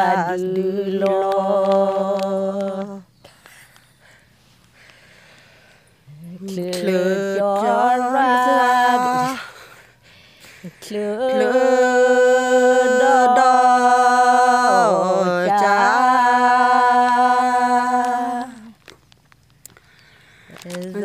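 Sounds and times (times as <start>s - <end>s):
woman singing unaccompanied: 0.0s - 3.2s, 6.1s - 9.7s, 10.6s - 18.8s, 20.6s - 21.0s.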